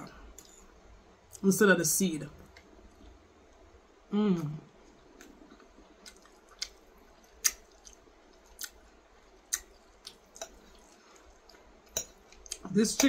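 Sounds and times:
person chewing food: 0:04.8 - 0:12.7.

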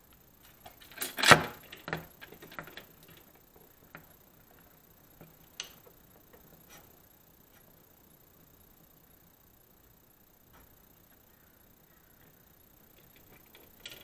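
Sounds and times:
steel bars clicking and tapping: 0:12.9 - 0:14.0.

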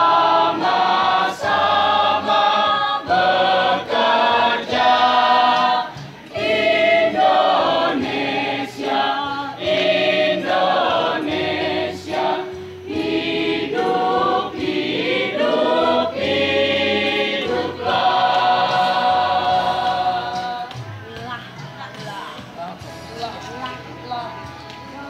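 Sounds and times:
choir singing: 0:00.0 - 0:21.0.

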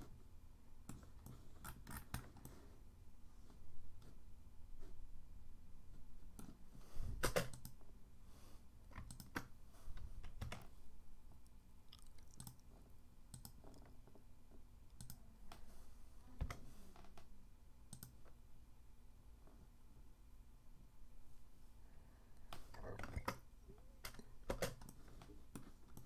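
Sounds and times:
mouse and keyboard clicking: 0:09.0 - 0:09.5, 0:12.3 - 0:12.6, 0:13.3 - 0:13.9, 0:14.9 - 0:15.2, 0:17.9 - 0:18.2.

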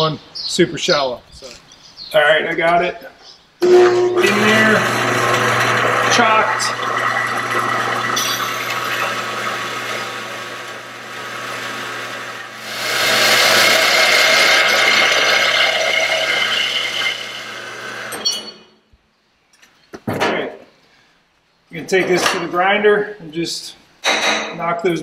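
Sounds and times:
band saw cutting metal: 0:03.6 - 0:18.5.

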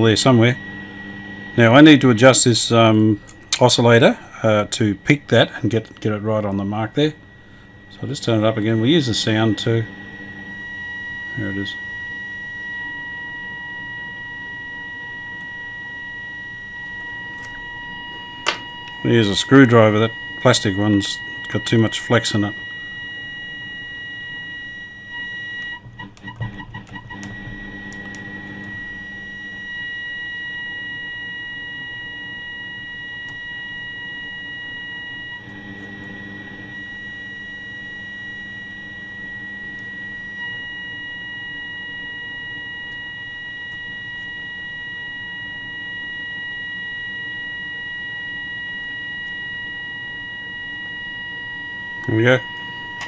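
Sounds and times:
radio crackling: 0:00.0 - 0:30.8, 0:49.2 - 0:53.0
high test tone from radio speaker: 0:00.0 - 0:53.0.

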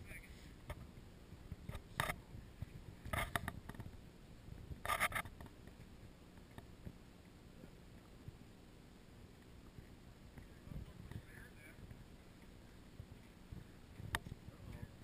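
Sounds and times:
faint low rumble: 0:00.0 - 0:15.0
camera handling scratches and rubs: 0:03.1 - 0:04.0, 0:04.8 - 0:05.5.

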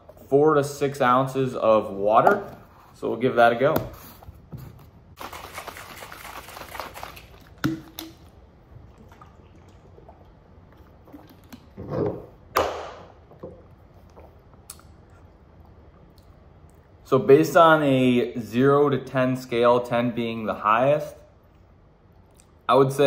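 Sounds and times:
liquid sloshing in shaker bottle: 0:05.2 - 0:12.2.

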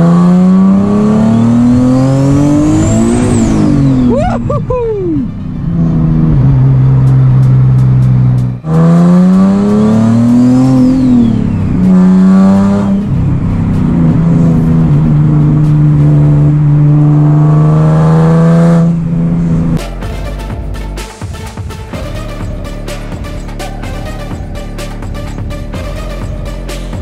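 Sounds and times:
car engine accelerating: 0:00.0 - 0:20.0, 0:22.0 - 0:27.0.

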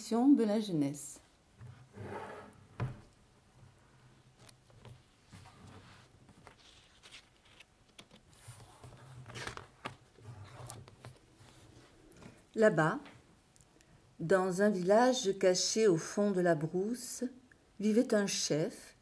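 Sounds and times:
book pages rustling: 0:04.3 - 0:12.4.

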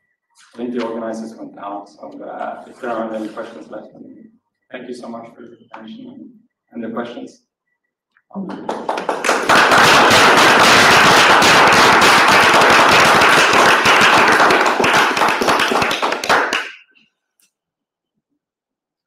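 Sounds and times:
audience applauding: 0:08.5 - 0:16.8.

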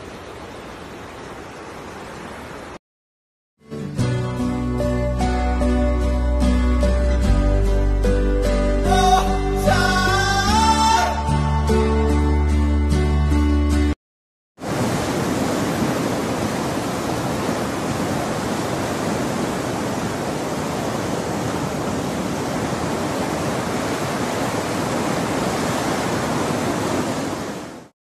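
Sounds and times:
ocean surf breaking: 0:14.6 - 0:27.9.

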